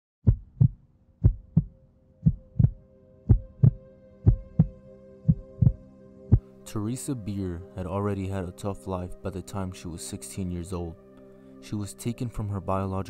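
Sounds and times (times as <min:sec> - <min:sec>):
heartbeat thumps: 0:00.2 - 0:05.8
sustained droning tone: 0:01.0 - 0:13.0.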